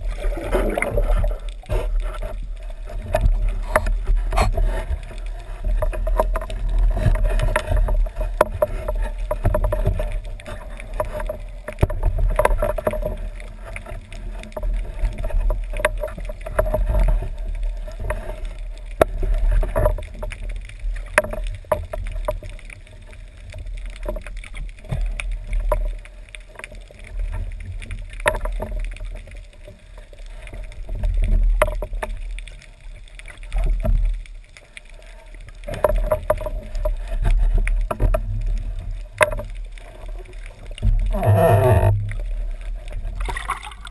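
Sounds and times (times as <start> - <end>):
muffled underwater rumble: 0.0 - 43.9
sharp clicks and knocks of gear: 3.0 - 43.9.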